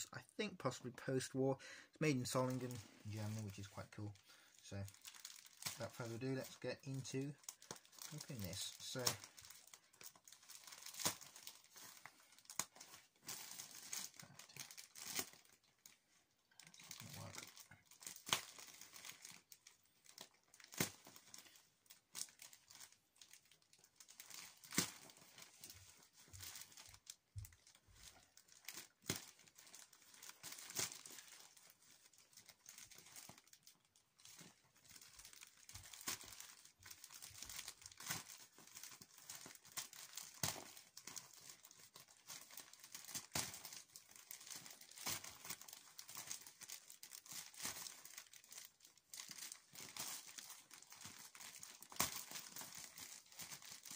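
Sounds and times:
plastic bag crinkling: 0:02.0 - 0:53.9.

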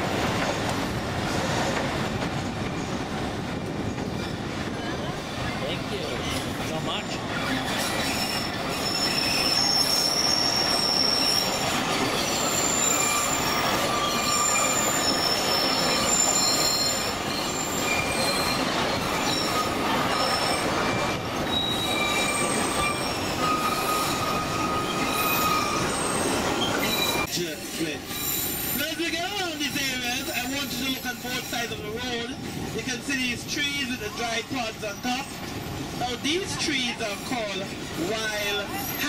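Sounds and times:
train wheels rumbling on rails: 0:00.0 - 0:39.0
high-pitched wheel squeals: 0:07.6 - 0:27.3.

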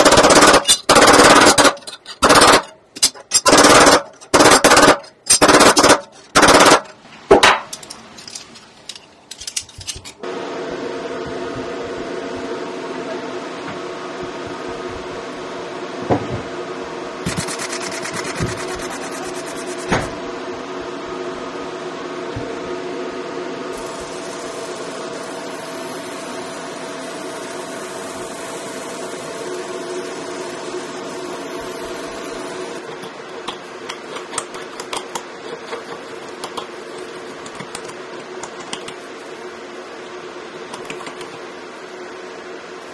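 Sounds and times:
laser engraver humming: 0:00.0 - 0:02.8, 0:10.2 - 0:42.9
fine high hiss: 0:23.7 - 0:32.8.

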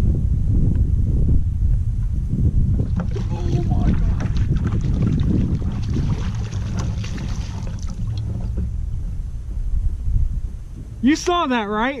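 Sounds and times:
wind rumbling on microphone: 0:00.0 - 0:12.0
water splashes and knocks: 0:02.8 - 0:08.8.

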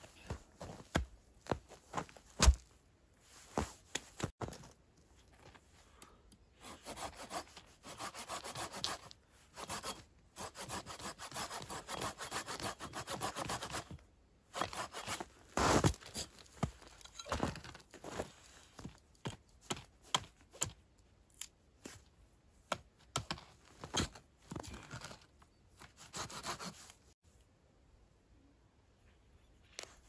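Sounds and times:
hand saw cutting wood: 0:06.6 - 0:13.9, 0:14.6 - 0:15.9, 0:26.0 - 0:26.8.

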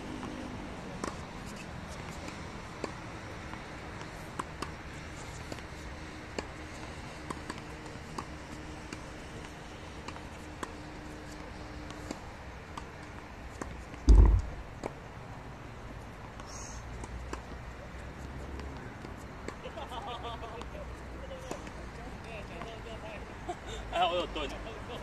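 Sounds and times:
tennis balls bouncing on hard court: 0:00.1 - 0:04.8, 0:05.5 - 0:15.0
tennis balls struck by rackets: 0:00.1 - 0:15.0.

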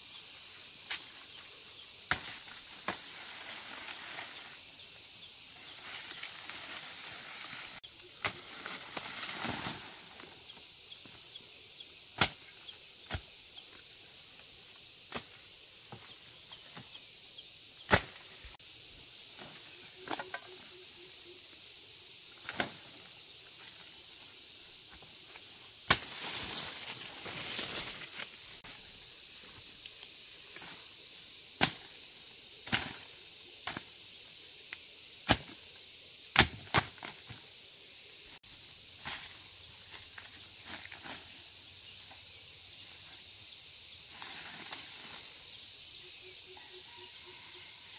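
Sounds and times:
cane leaves rustling: 0:00.0 - 0:11.3, 0:22.3 - 0:33.9
machete chopping cane: 0:02.1 - 0:03.2, 0:12.2 - 0:13.3, 0:17.9 - 0:18.2, 0:25.9 - 0:26.2, 0:31.6 - 0:31.9, 0:35.2 - 0:35.6, 0:36.3 - 0:37.2.

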